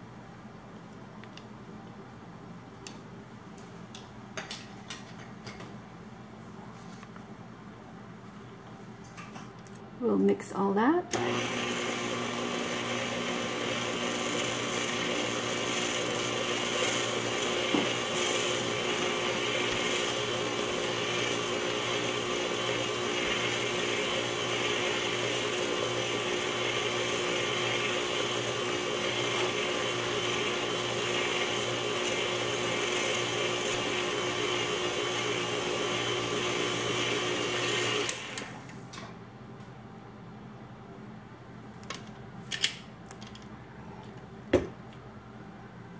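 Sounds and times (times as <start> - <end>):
stand mixer motor humming: 11.2 - 38.5.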